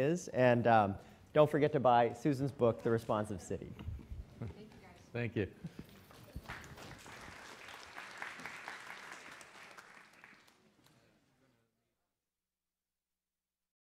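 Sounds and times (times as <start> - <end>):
audience applauding: 6.1 - 11.1.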